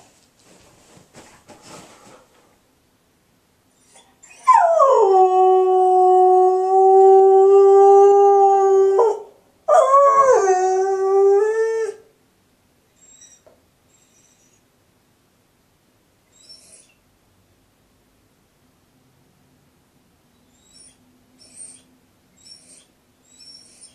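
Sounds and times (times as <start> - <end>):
dog howling: 4.3 - 12.0.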